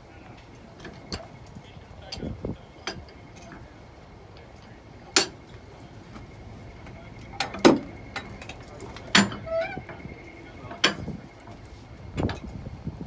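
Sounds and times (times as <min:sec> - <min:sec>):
metal clinks of coupling gear: 0:00.8 - 0:03.7, 0:07.2 - 0:12.7
faint steady high tone: 0:02.5 - 0:12.7.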